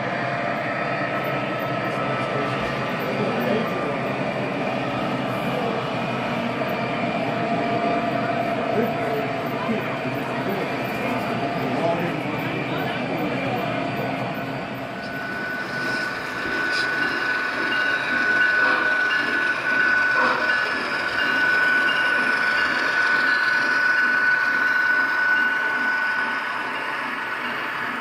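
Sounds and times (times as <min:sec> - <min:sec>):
model train motor whine: 0:08.2 - 0:28.0.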